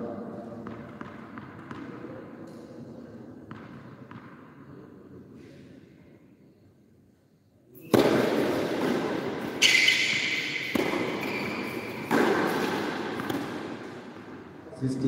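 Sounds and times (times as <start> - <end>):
tennis racket hitting ball: 7.8 - 14.4.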